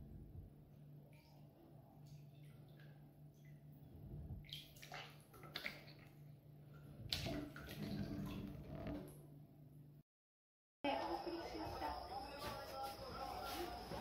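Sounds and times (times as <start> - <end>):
steady low hum: 0.0 - 4.6
bathwater splashing: 4.4 - 9.1.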